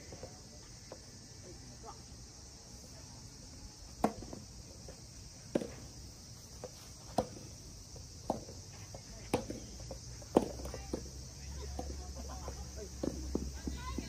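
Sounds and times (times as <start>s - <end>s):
tennis ball bouncing: 4.0s - 6.0s, 6.6s - 12.2s, 12.9s - 14.0s.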